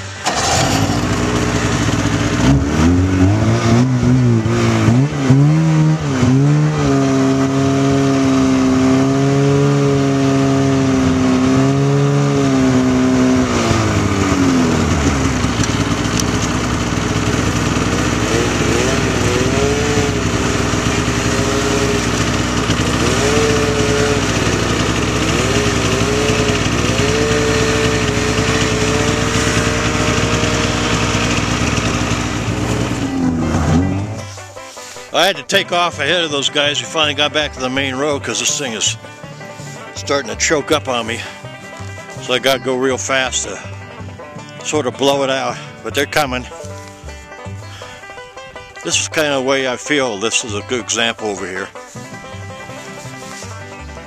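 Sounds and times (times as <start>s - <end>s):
snowmobile engine revving: 0.0s - 54.0s.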